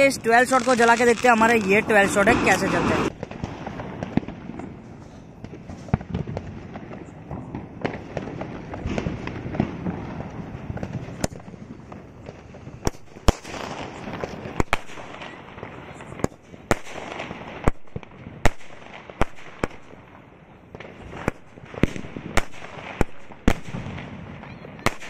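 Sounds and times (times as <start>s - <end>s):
firework crackling hiss: 0.0s - 19.9s
firework shots cracking: 0.0s - 25.0s.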